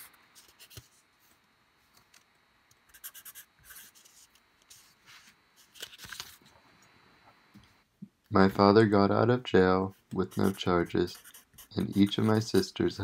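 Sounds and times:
faint scratching and rubbing: 0:09.9 - 0:13.0.

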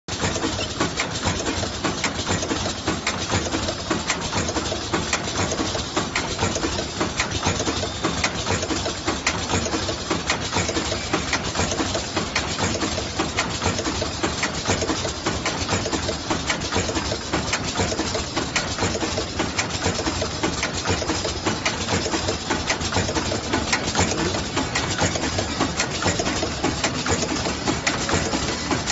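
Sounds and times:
packing machine clattering clicks: 0:00.1 - 0:28.9
machine hum: 0:18.0 - 0:28.9.

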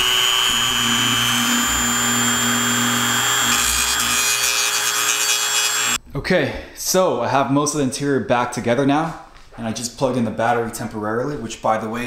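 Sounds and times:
rotary tool grinding plastic: 0:00.0 - 0:06.0.

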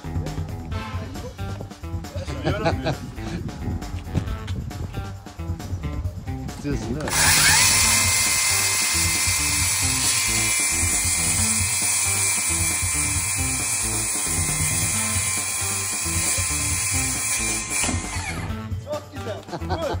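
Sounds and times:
background music: 0:00.0 - 0:20.0
electric motor high whine: 0:07.1 - 0:18.6.

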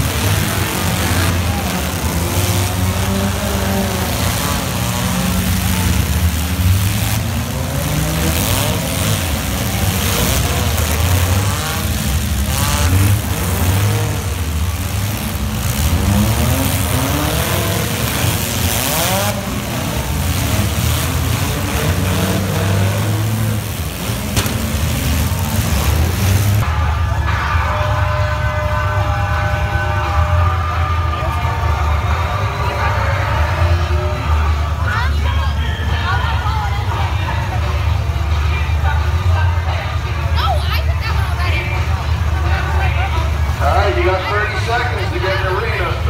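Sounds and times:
car engines revving: 0:00.0 - 0:46.0
cars crashing bangs: 0:17.8 - 0:26.6.

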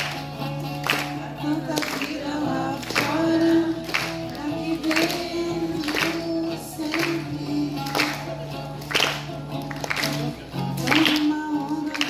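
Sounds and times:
acoustic guitar strumming: 0:00.0 - 0:12.0
woman singing slow song: 0:01.0 - 0:08.4, 0:10.8 - 0:12.0.

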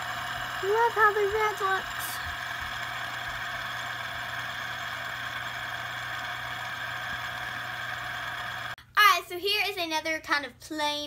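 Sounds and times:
fidget spinner whirring: 0:00.0 - 0:08.8.

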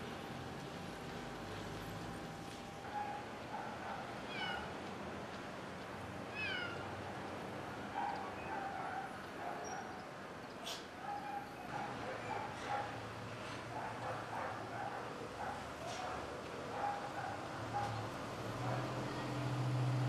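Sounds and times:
cat meowing: 0:04.3 - 0:04.7, 0:06.3 - 0:06.8.

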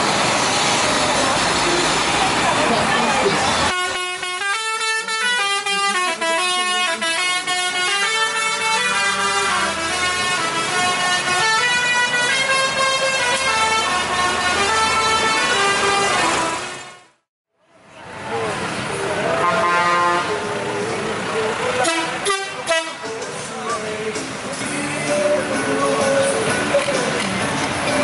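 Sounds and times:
horn-like stepped tune: 0:03.8 - 0:17.1, 0:21.8 - 0:23.2.

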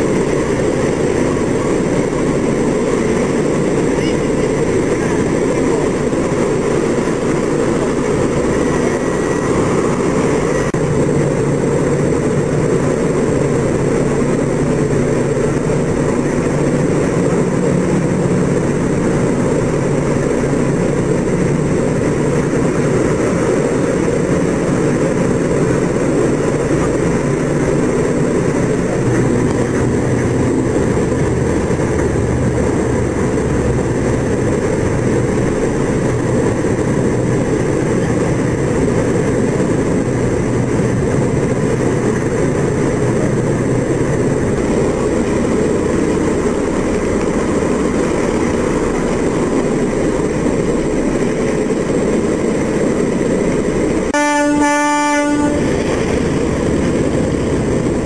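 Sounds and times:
heavy boat engines running: 0:00.0 - 0:58.0
horn blast: 0:54.1 - 0:55.9.

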